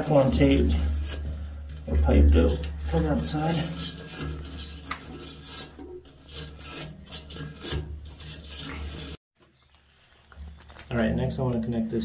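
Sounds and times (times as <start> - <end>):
wire brush scrubbing pipe threads: 0.0 - 9.2.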